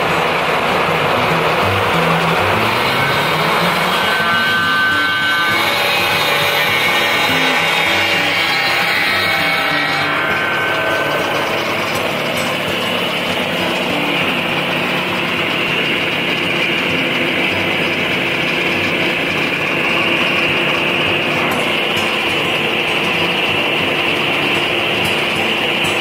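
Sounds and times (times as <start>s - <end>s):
circular saw blade spinning: 0.0s - 26.0s
sawmill running: 0.0s - 26.0s.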